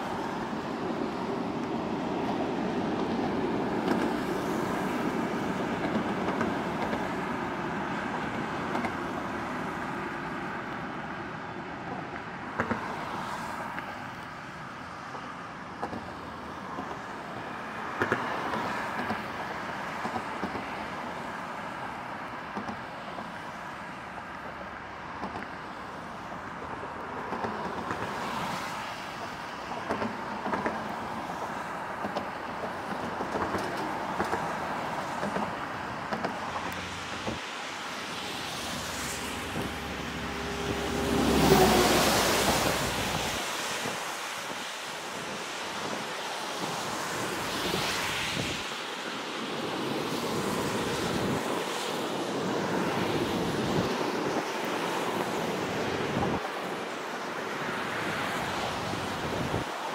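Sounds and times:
highway traffic: 0:00.0 - 0:59.9
tyres hissing on wet pavement: 0:27.6 - 0:29.6, 0:30.2 - 0:59.9
vehicle passing close: 0:38.7 - 0:43.4.

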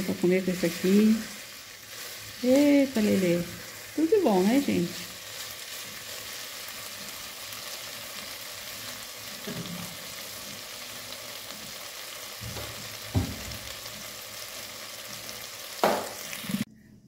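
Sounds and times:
food sizzling in a pan: 0:00.0 - 0:16.7.

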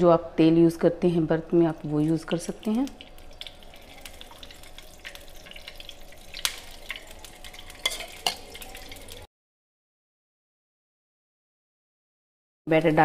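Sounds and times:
batter sizzling in a pan: 0:01.7 - 0:09.3
spoon clicking against pan: 0:06.3 - 0:09.1.

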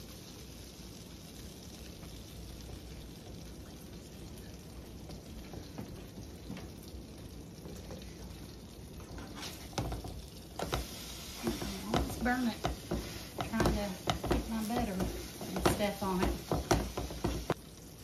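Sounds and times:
sandwiches sizzling in skillet: 0:00.0 - 0:18.0
utensils clicking against pan: 0:09.2 - 0:17.6.

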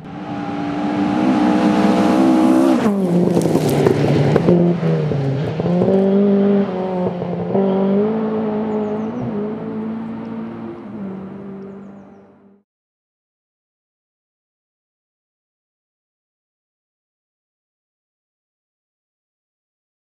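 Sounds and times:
car rushing past: 0:00.0 - 0:12.6
rally car engine braking and accelerating: 0:00.0 - 0:12.6.

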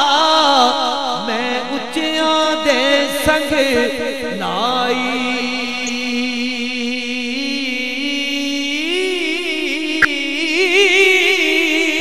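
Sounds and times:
man singing: 0:00.0 - 0:12.0.

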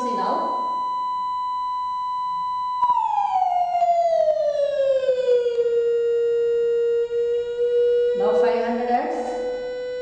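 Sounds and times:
sine wave tone gliding down: 0:00.0 - 0:10.0.

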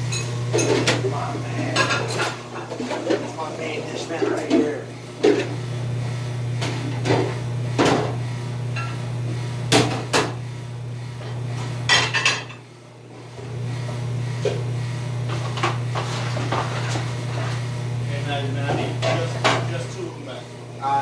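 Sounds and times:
low machine hum: 0:00.0 - 0:21.0
dishes clattering: 0:00.1 - 0:03.4, 0:11.9 - 0:12.6, 0:18.6 - 0:19.9.

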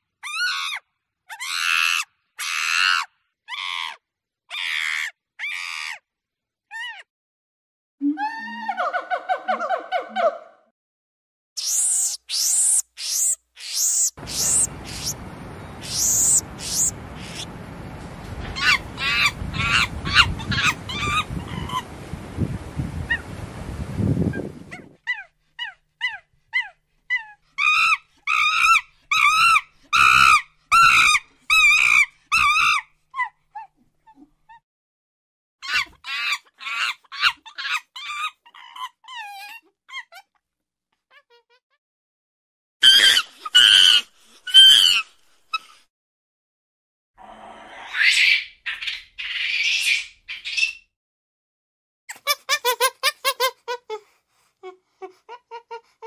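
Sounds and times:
monkey shrieks and chatters: 0:00.2 - 0:06.0, 0:06.7 - 0:07.1, 0:11.6 - 0:17.5, 0:18.5 - 0:21.9, 0:24.4 - 0:34.6, 0:35.6 - 0:40.3, 0:42.8 - 0:45.8, 0:47.8 - 0:50.9
background hiss: 0:14.0 - 0:24.7.

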